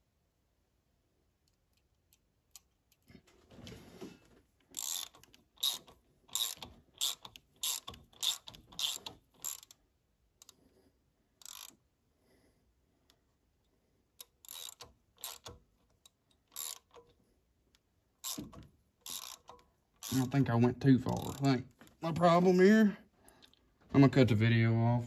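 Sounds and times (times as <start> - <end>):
socket ratchet clicking: 4.7 - 9.8, 11.4 - 11.8, 14.2 - 17.1, 18.2 - 20.4, 21.1 - 21.5.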